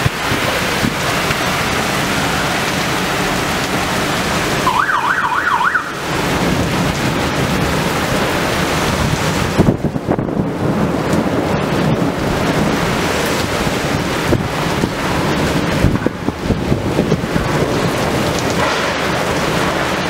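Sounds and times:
wind buffeting microphone: 0:00.0 - 0:04.8, 0:05.4 - 0:20.0
heavy rain: 0:00.0 - 0:20.0
storm wind: 0:00.0 - 0:20.0
siren wailing: 0:04.5 - 0:06.3.

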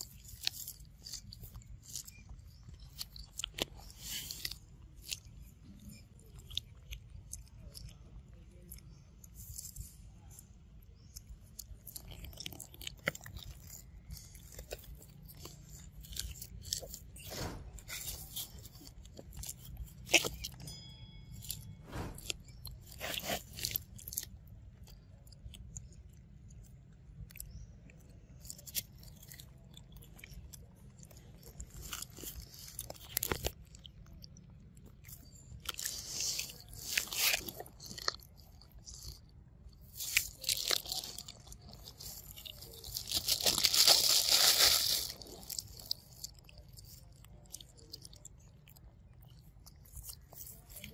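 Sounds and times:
monkey chewing corn: 0:00.0 - 0:20.7, 0:21.3 - 0:50.9.

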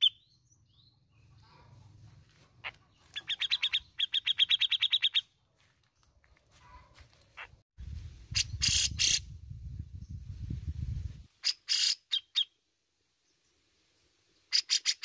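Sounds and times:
bird chirping: 0:00.0 - 0:07.6, 0:11.4 - 0:12.6, 0:14.4 - 0:15.0.

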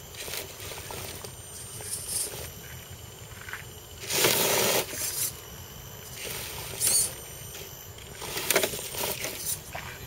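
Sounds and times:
toy truck tyres scraping dirt: 0:04.0 - 0:05.4.

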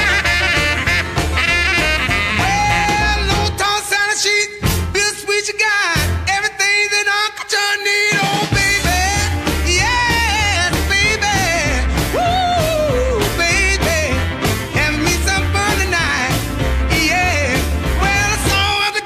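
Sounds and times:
person singing: 0:02.3 - 0:19.0
steady bass beat: 0:08.6 - 0:18.8.

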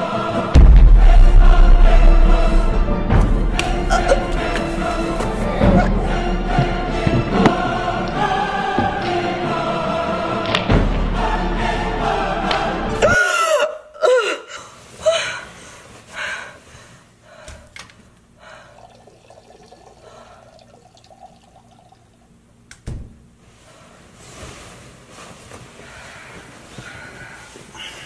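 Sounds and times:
sharp thump: 0:00.6 - 0:05.4.

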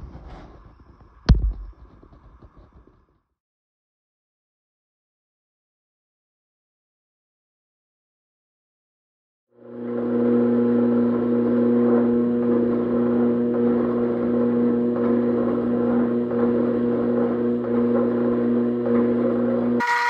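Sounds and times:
hydraulic press motor hum: 0:09.7 - 0:20.0.

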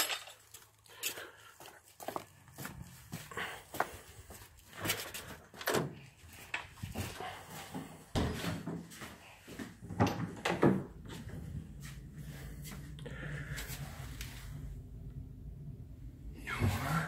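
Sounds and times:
footsteps on hard floor: 0:06.3 - 0:09.9.

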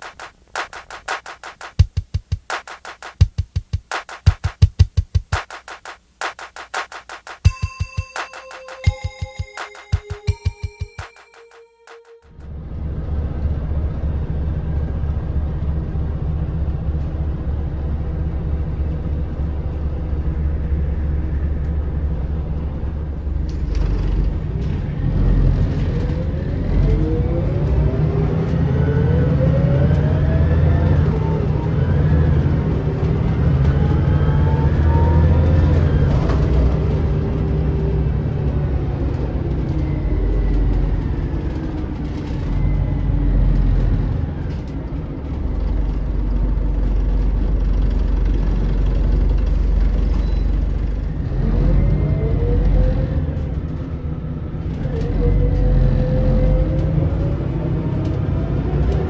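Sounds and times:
bus engine rumbling: 0:12.4 - 0:59.0.

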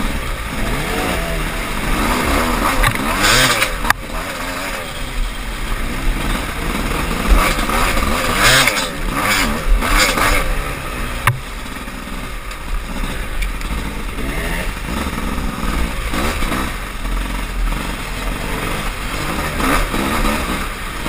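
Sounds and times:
dirt bike engine revving: 0:00.0 - 0:21.0
sharp knocks: 0:11.2 - 0:11.5.

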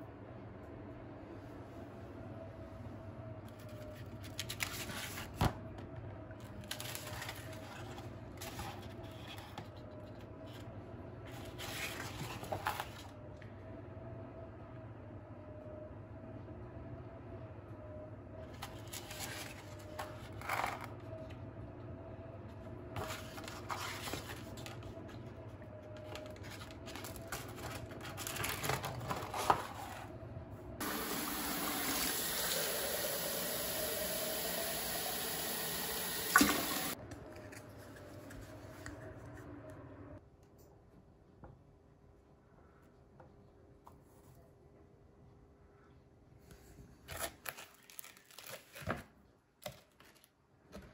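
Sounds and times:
faint steady hum: 0:00.0 - 0:47.1
rustling and handling: 0:06.4 - 0:13.3, 0:18.4 - 0:21.4, 0:22.6 - 0:30.3, 0:36.4 - 0:39.5.

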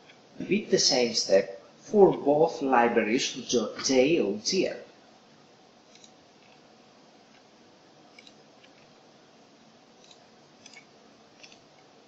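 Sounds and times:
faint room hiss: 0:00.0 - 0:12.0
computer mouse clicks: 0:05.9 - 0:06.6, 0:08.1 - 0:08.9, 0:10.0 - 0:11.9.

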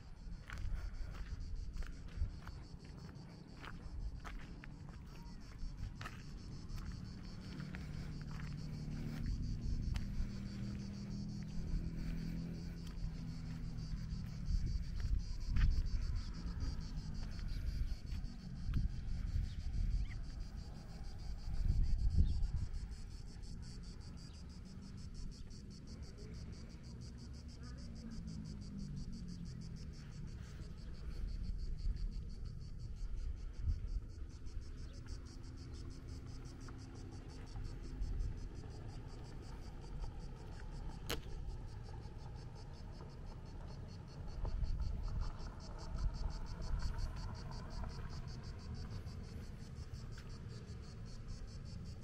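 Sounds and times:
insects chirping: 0:00.0 - 0:52.0
low rumble: 0:05.3 - 0:22.9.

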